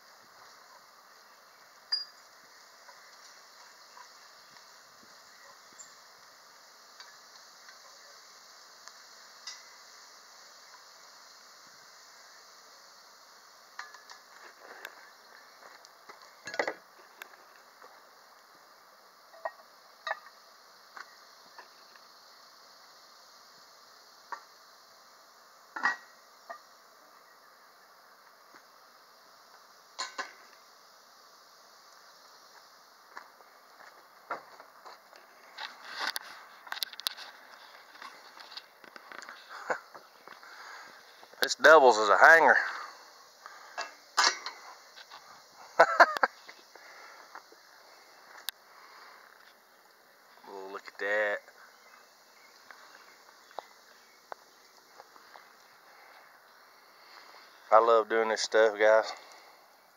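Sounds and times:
faint sizzle: 0.0 - 59.9
metal clink against pot: 1.9 - 2.2, 30.0 - 30.4.

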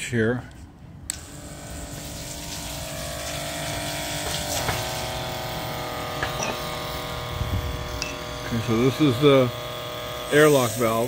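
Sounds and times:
electric water pump motor hum: 1.1 - 11.0.

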